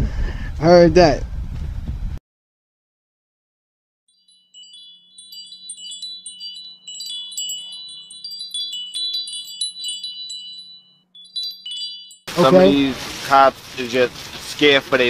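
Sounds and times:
chimes tinkling: 4.1 - 13.1.

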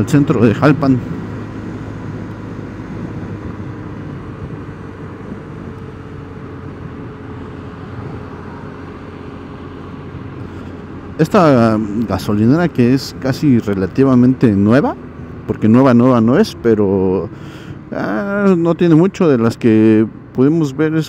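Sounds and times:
car engine hum: 0.0 - 21.0
road and tyre noise: 0.0 - 21.0.

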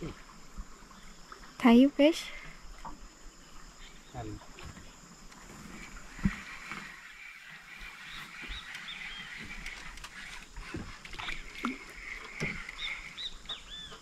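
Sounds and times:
insect drone: 0.0 - 14.0
bird chirps: 12.7 - 14.0.

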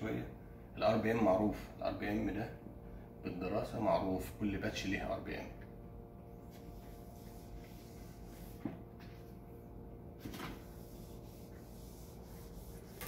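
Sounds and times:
steady low hum: 0.0 - 13.0
eraser rubbing whiteboard: 6.5 - 9.3, 10.2 - 13.0.

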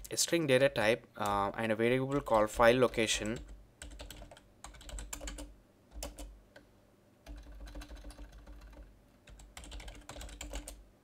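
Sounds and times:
keyboard typing clicks: 2.1 - 6.7.

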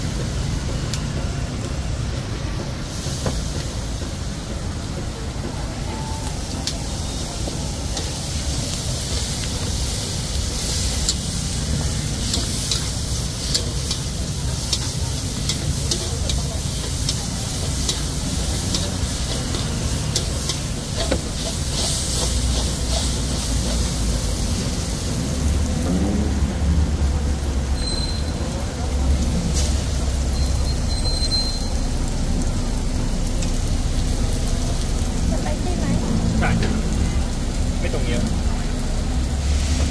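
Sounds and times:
noodles sizzling in a wok: 0.0 - 39.9.

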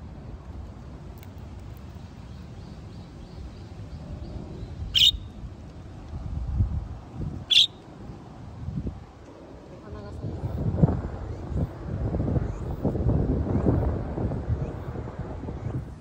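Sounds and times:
wind rumbling on microphone: 0.0 - 16.0
sharp bird chirps: 4.6 - 5.3, 7.5 - 7.8.

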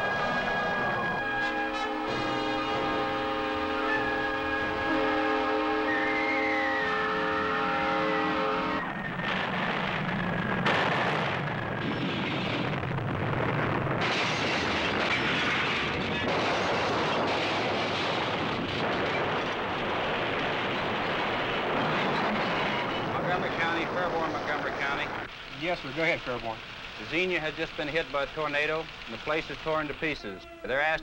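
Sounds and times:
train horn blowing a chord: 0.0 - 8.8, 30.2 - 30.9
tornado roaring: 0.0 - 30.2
debris crashing: 8.8 - 28.4.

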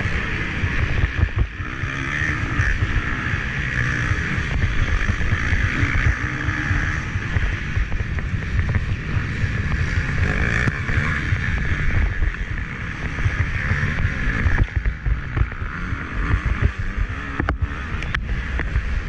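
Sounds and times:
motocross bike engine revving: 0.0 - 19.0
wind buffeting microphone: 0.0 - 19.0.

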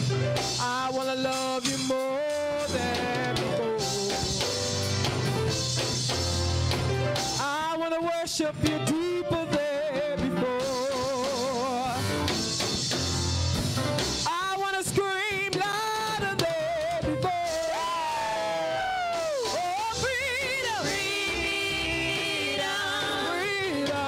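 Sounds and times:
live band playing: 0.0 - 24.0
women singing gospel song: 14.7 - 24.0.

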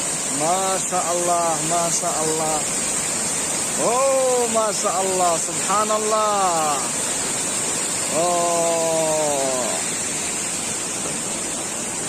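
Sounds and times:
waterfall rushing: 0.0 - 12.0
man's long drawn-out voice: 8.1 - 9.9.

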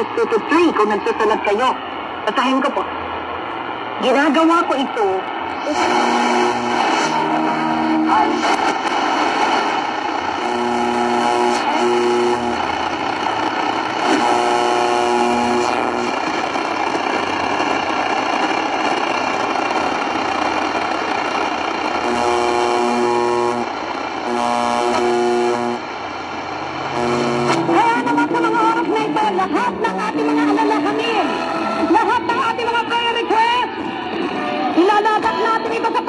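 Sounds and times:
radio static hiss: 0.0 - 36.0
radio music chords: 5.5 - 16.3.

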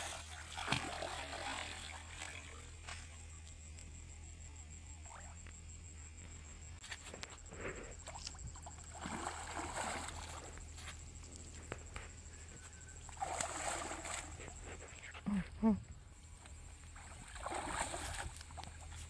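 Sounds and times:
fish splashing in water: 0.0 - 2.6, 8.6 - 10.6, 13.1 - 14.4.

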